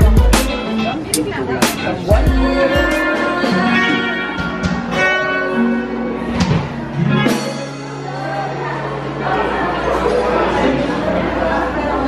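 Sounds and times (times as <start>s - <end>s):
person singing: 0.0s - 4.9s
acoustic guitar strumming: 0.0s - 9.4s.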